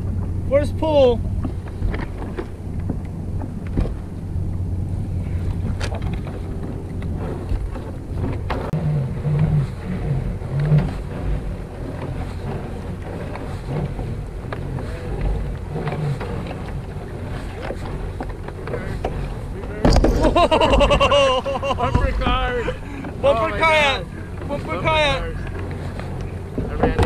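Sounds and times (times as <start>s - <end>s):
wind on microphone: 0.0s - 27.0s
rope knocking and rubbing on hull: 1.2s - 27.0s.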